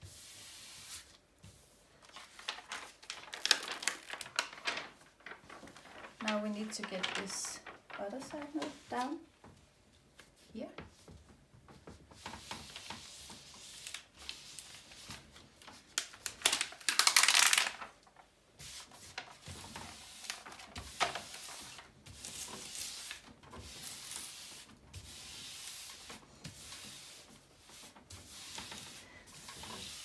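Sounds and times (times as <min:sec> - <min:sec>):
hands rubbing over paper: 0:00.1 - 0:09.2
paper rustling: 0:00.6 - 0:09.3, 0:11.7 - 0:30.0.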